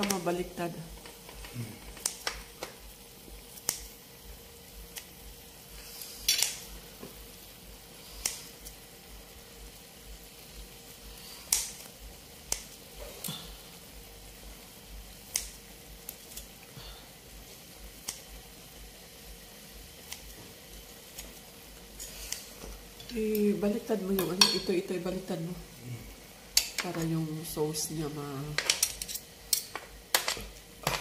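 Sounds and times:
faint simmer from pan: 0.0 - 31.0
scissors snipping: 8.2 - 8.5, 11.5 - 11.8.

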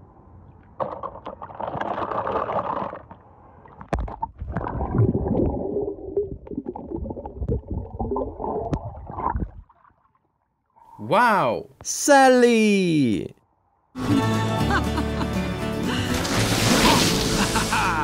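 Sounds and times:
irregular knocks underwater: 6.2 - 9.7
water sloshing and splashing: 16.0 - 17.7.

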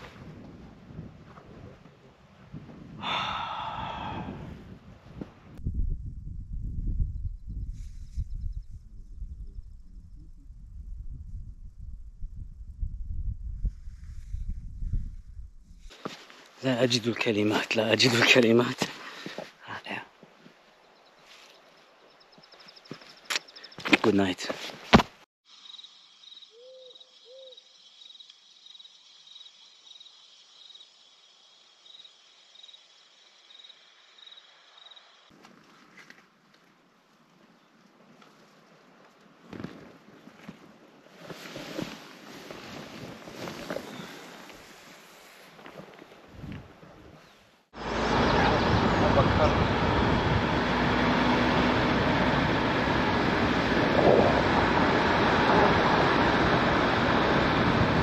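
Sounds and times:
gusty wind buffeting microphone: 0.0 - 15.9, 46.2 - 58.0
rough outdoor noise: 13.7 - 58.0
cricket chirping: 20.8 - 23.9, 25.5 - 35.3.

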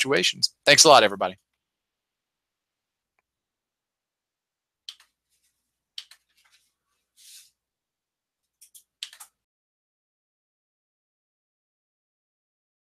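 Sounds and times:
computer mouse clicks: 4.9 - 5.2, 6.0 - 6.3, 8.6 - 9.4.

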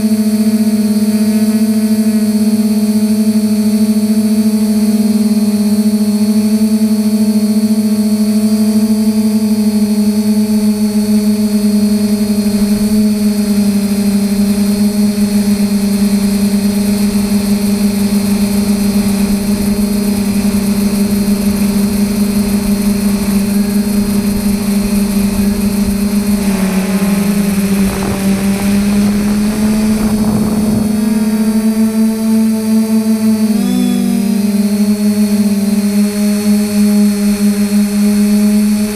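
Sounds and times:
drone motors humming: 0.0 - 38.9
wind rumble: 11.4 - 33.4.

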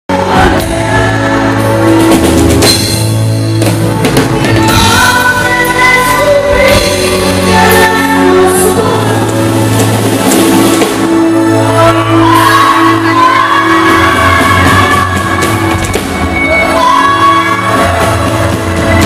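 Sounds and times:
band with drums and keyboards: 0.1 - 19.0
woman singing into a microphone: 4.4 - 10.0, 11.6 - 19.0.

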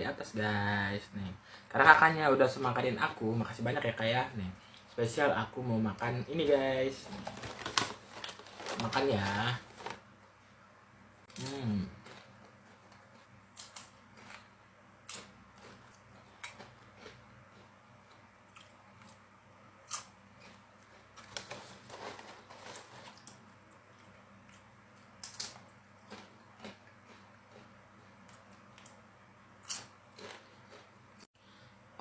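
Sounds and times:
foil snack bag crackling: 7.0 - 10.0
chips crunching while chewed: 11.4 - 19.2, 19.8 - 29.0, 29.6 - 30.9.

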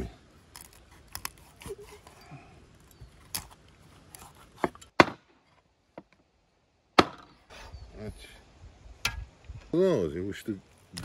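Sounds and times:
cleaver chopping on wooden board: 4.6 - 5.2, 7.0 - 7.3.

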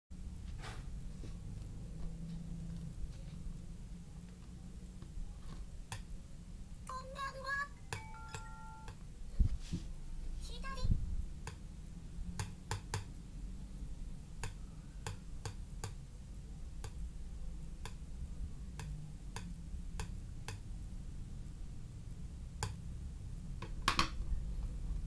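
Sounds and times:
low steady hum: 0.2 - 25.0
fingertips tapping touchscreen: 6.9 - 9.0.

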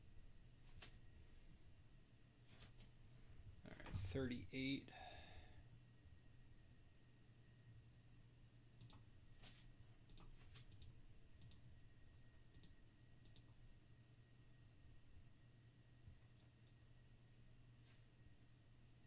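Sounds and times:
low steady hum: 0.0 - 19.0
keyboard and mouse clicks: 8.8 - 9.1, 10.1 - 11.6, 12.5 - 13.6.

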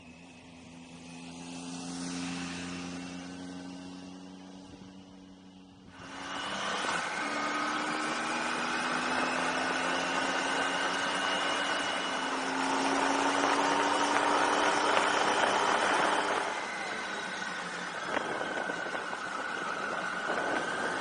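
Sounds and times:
motorcycle engine running: 0.0 - 21.0
wind rushing over microphone: 6.0 - 21.0.

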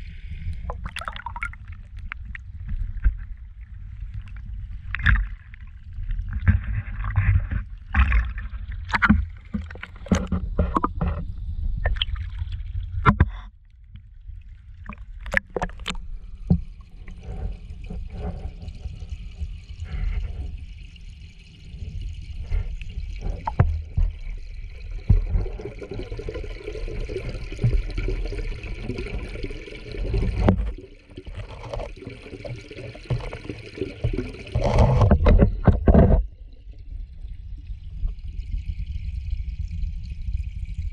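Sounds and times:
muffled underwater rumble: 0.0 - 40.9
water sloshing: 0.7 - 11.2.

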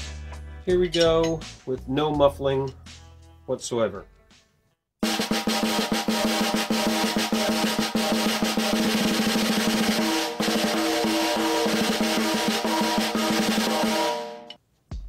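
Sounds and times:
snare drum strokes and rolls: 5.0 - 14.5.

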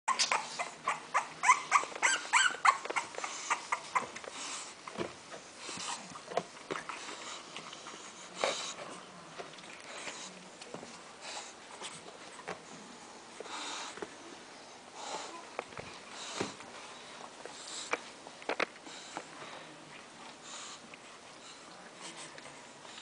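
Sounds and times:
puppies squeaking and whimpering: 0.1 - 4.2.

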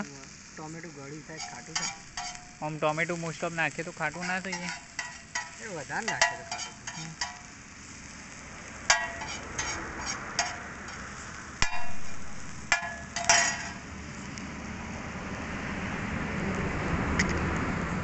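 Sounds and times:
food sizzling: 0.0 - 16.2
metal spatula scraping griddle: 1.3 - 8.2, 8.8 - 13.9
spatula ringing clinks: 12.8 - 13.8.

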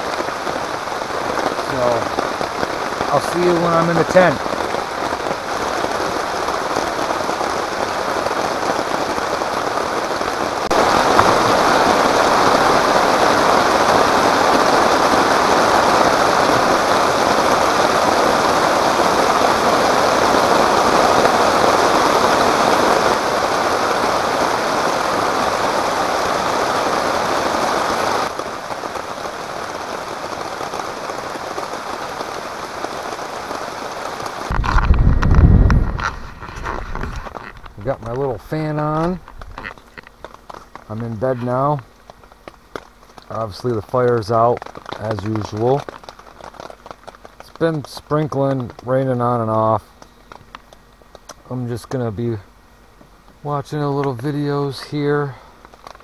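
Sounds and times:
steady rain hissing: 0.0 - 56.0
short low thump: 34.5 - 36.4.

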